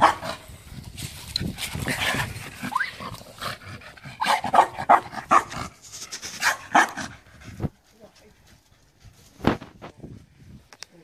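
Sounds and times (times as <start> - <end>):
dog barking: 0.0 - 0.4, 4.2 - 5.6, 6.4 - 7.1.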